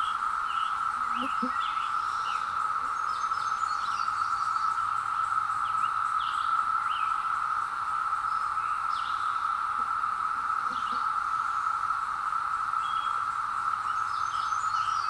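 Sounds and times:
bird chirps: 0.0 - 5.0, 10.6 - 11.6
cicadas droning: 0.0 - 15.0.

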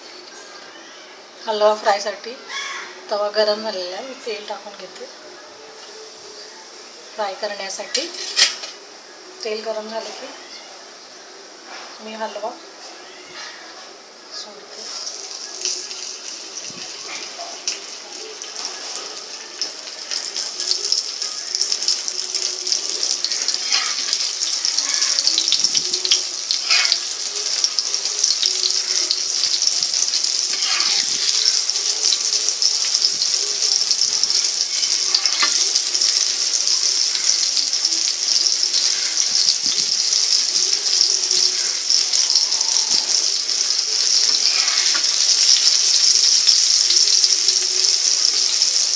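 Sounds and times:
fish sizzling in hot oil: 7.2 - 10.1, 14.7 - 48.9
oil spitting crackles: 14.8 - 48.9.

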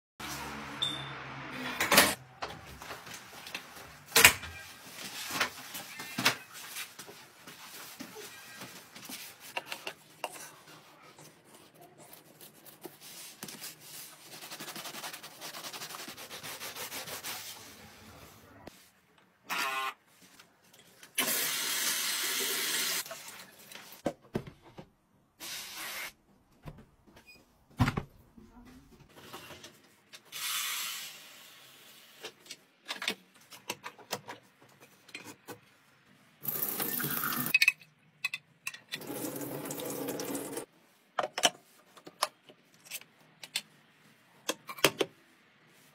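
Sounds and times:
sponge scrubbing a sneaker: 11.3 - 18.2.

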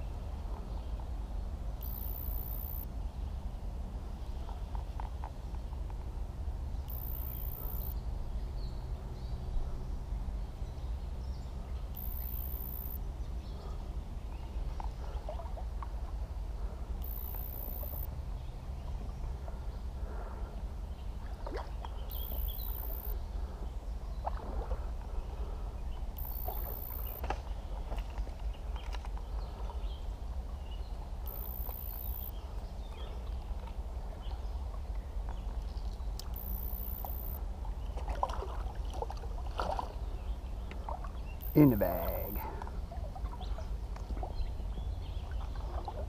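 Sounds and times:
river water sloshing and splashing: 13.6 - 17.0, 17.8 - 36.4, 37.0 - 41.7, 42.4 - 46.0.

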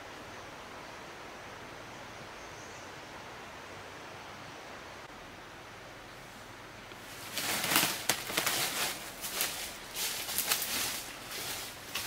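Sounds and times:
footsteps crunching dry leaves: 7.0 - 12.0.

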